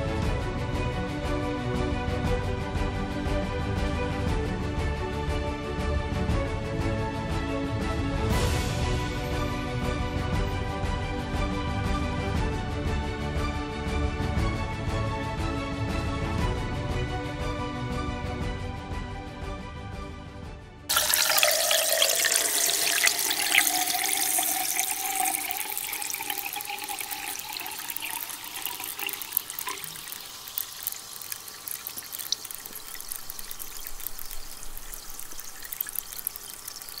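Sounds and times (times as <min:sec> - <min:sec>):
liquid fizzing and bubbling: 0:20.9 - 0:37.0.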